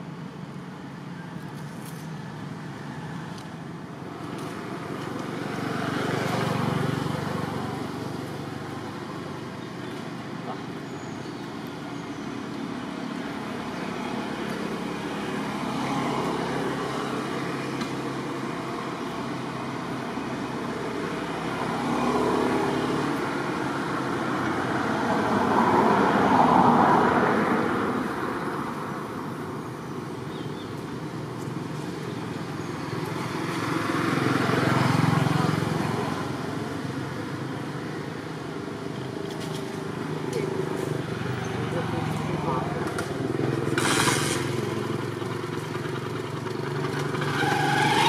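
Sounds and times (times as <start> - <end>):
road traffic noise: 0.0 - 48.0
vehicle passing: 2.6 - 10.9, 31.6 - 48.0.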